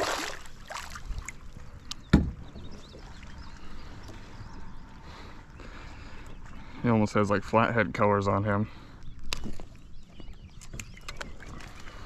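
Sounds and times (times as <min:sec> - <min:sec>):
water splashing: 0:00.0 - 0:01.7
loud thump: 0:02.1 - 0:02.4.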